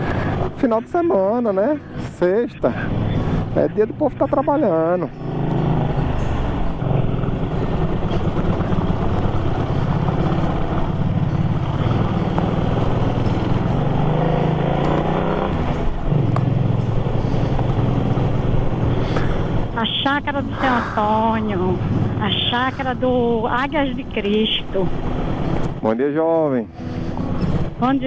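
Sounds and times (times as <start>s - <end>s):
motorcycle engine running: 0.0s - 25.9s.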